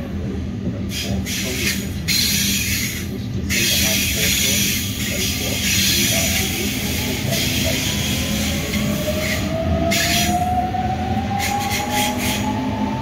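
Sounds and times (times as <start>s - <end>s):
electric train motors whining: 3.6s - 13.0s.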